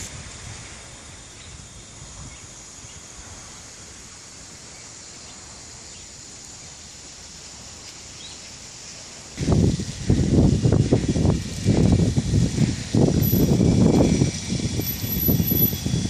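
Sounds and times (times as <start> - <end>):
faint steady hiss: 0.0 - 16.0
low buffeting: 9.4 - 16.0.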